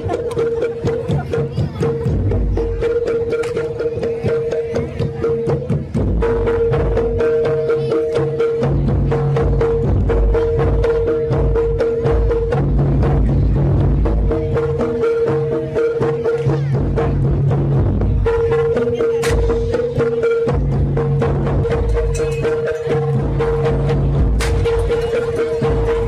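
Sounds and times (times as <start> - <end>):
fast dense drumming: 0.0 - 26.0
low steady bass: 16.5 - 26.0.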